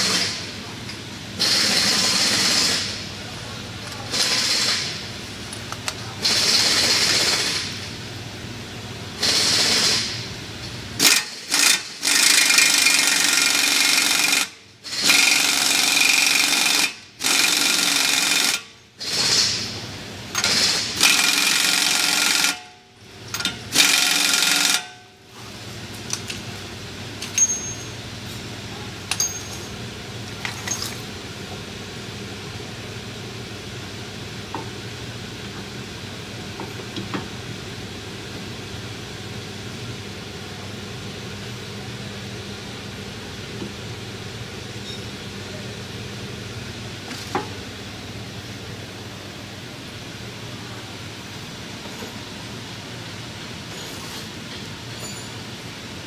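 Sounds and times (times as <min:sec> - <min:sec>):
pneumatic impact wrench bursts: 0:00.0 - 0:00.5, 0:01.4 - 0:03.0, 0:04.1 - 0:05.0, 0:06.2 - 0:07.8, 0:09.2 - 0:10.2, 0:11.0 - 0:22.7, 0:23.7 - 0:25.0.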